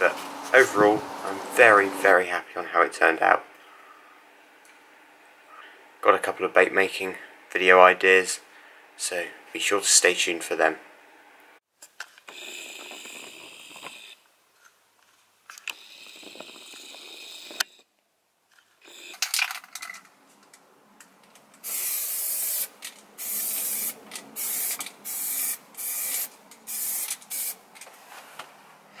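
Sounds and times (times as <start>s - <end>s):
spray paint can hissing: 21.6s - 27.6s.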